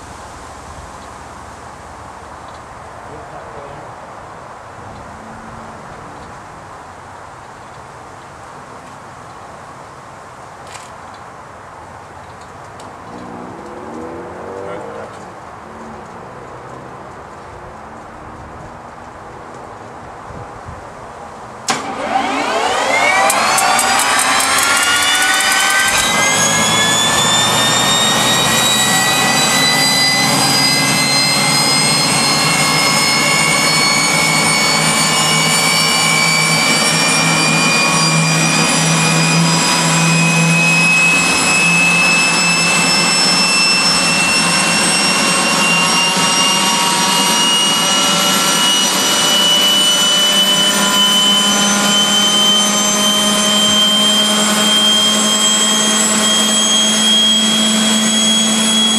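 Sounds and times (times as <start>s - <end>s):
turbine whine spooling up: 12.8s - 17.4s, 21.6s - 58.9s
low hum: 12.9s - 18.1s, 21.7s - 58.9s.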